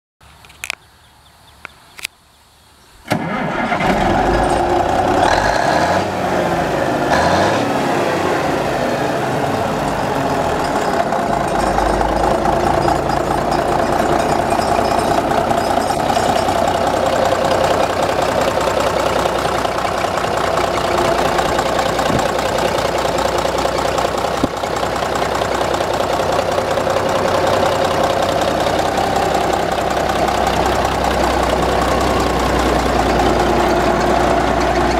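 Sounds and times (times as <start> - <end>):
diesel engine starting and idling: 3.0 - 34.9.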